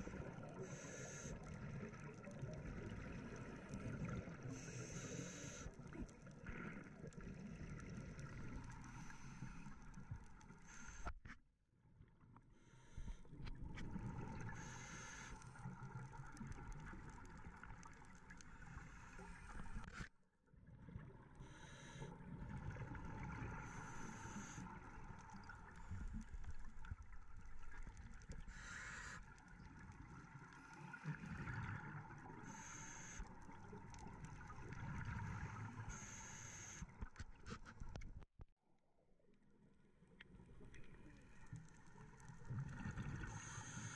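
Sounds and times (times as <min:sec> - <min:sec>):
regulator hissing bubbles: 0:00.0 - 0:06.0, 0:14.1 - 0:15.6, 0:23.1 - 0:26.0, 0:32.2 - 0:33.8, 0:34.4 - 0:36.9
muffled underwater water rumble: 0:12.9 - 0:38.2, 0:40.0 - 0:43.9.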